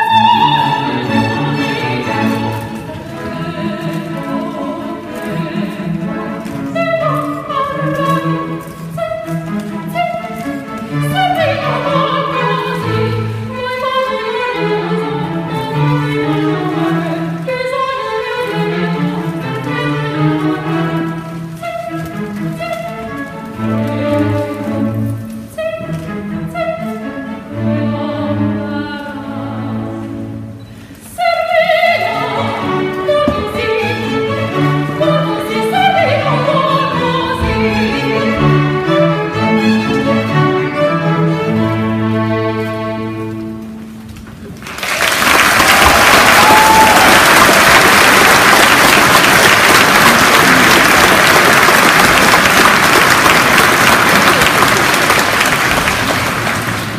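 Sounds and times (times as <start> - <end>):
string orchestra playing: 0.0 - 56.9
woman singing operatically: 2.9 - 8.6, 27.1 - 30.1, 31.1 - 38.7
audience applause: 44.6 - 56.9.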